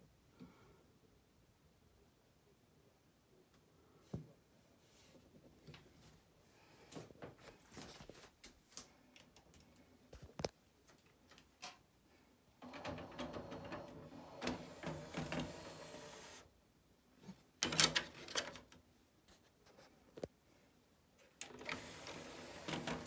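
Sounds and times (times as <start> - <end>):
disc tray sliding open: 12.7 - 16.4, 21.5 - 23.0.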